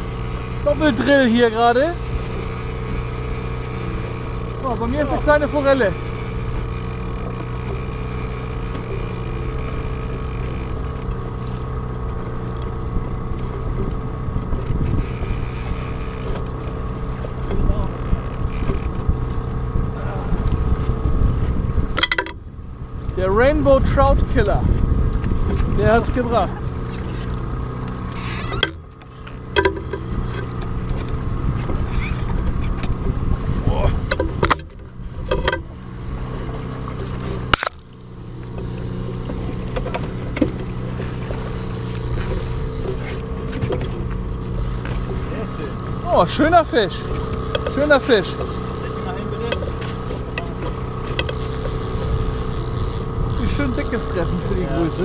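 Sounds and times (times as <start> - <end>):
outboard motor running: 0.0 - 55.0
water noise: 0.0 - 55.0
wind: 0.0 - 55.0
sharp clicks and knocks: 22.0 - 22.4, 28.5 - 31.8, 34.0 - 35.8, 37.0 - 40.7, 47.1 - 54.3.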